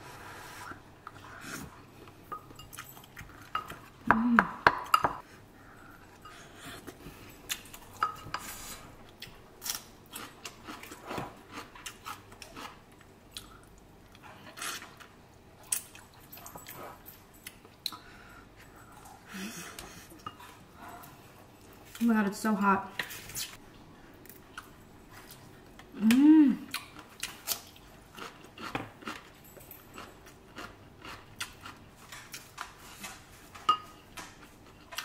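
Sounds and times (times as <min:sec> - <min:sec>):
chewing: 0:24.2 - 0:33.2.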